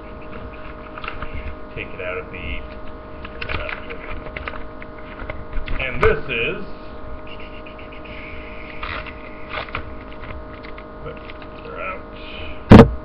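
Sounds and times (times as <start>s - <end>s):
steady hum: 0.0s - 13.0s
hands rustling card packaging: 8.7s - 11.7s.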